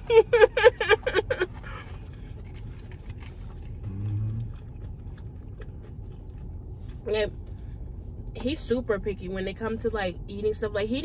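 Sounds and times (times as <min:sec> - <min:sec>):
closed-mouth hum: 0:00.0 - 0:10.8
low rumble inside a car: 0:00.0 - 0:11.0
chewing and food clicks: 0:02.2 - 0:07.6.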